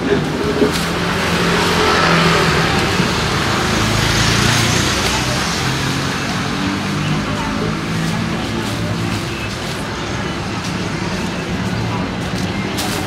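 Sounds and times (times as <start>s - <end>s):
motor vehicle passing: 0.0s - 9.2s.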